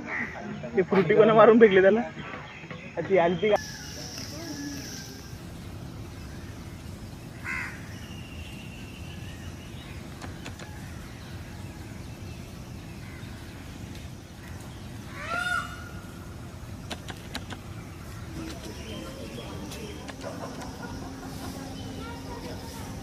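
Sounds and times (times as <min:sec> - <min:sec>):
faint bird calls: 0:02.1 - 0:11.9, 0:12.9 - 0:23.0
low outdoor rumble: 0:03.6 - 0:23.0
crow cawing: 0:07.4 - 0:07.8, 0:15.1 - 0:16.0.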